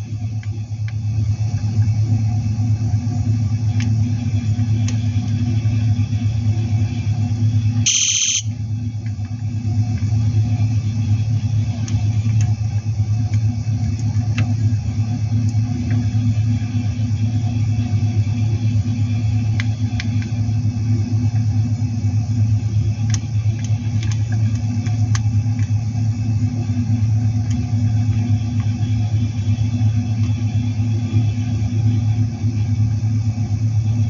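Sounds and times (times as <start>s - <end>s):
high-pitched electronic tone: 7.8s - 8.5s.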